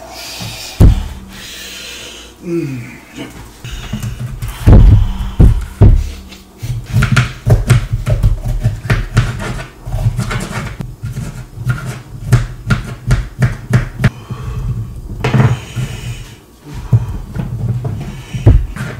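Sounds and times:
knife chopping on cutting board: 0:06.9 - 0:14.1.

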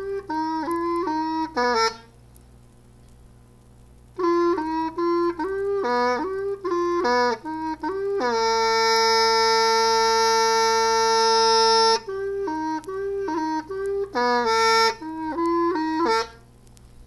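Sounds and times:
solo reedy wind instrument: 0:00.0 - 0:02.2, 0:04.2 - 0:16.5.

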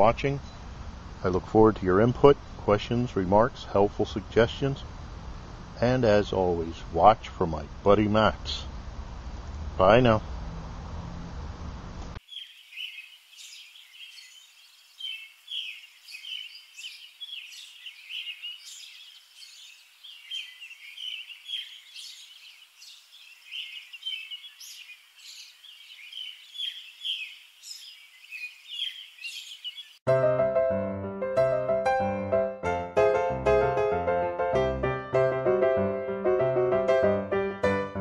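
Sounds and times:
birds chirping: 0:00.0 - 0:04.9, 0:12.2 - 0:30.0
steady low background noise: 0:00.0 - 0:12.2.

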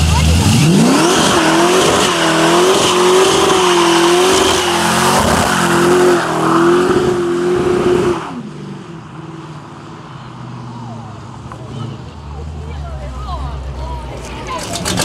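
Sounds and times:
car engine revving high: 0:00.0 - 0:09.0.

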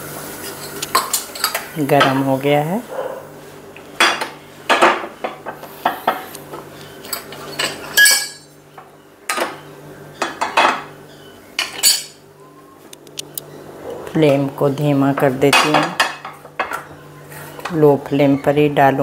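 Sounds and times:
metal utensils clinking on pans: 0:00.5 - 0:02.4, 0:07.0 - 0:08.5, 0:11.6 - 0:12.2.

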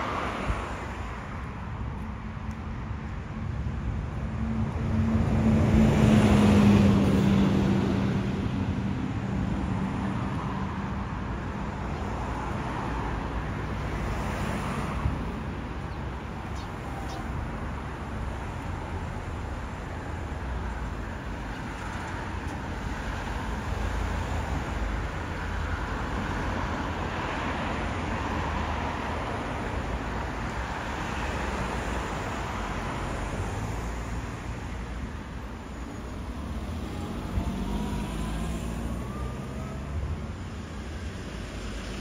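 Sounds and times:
low rumble of cars: 0:00.0 - 0:42.0
vehicle passing: 0:36.0 - 0:42.0
vehicle pulling away: 0:36.3 - 0:40.4.

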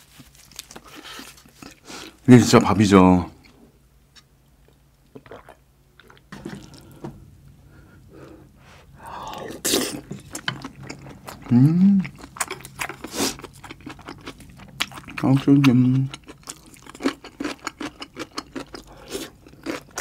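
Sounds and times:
swallowing juice: 0:05.0 - 0:07.1
chewing with wet mouth smacks: 0:09.7 - 0:20.0
person humming: 0:11.5 - 0:12.2.

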